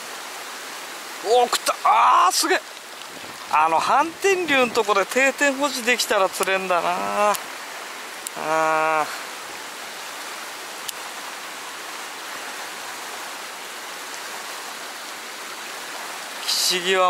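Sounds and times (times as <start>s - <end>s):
river water rushing: 0.0s - 17.0s
man exclaiming: 1.2s - 2.6s, 6.7s - 7.4s, 8.4s - 9.2s.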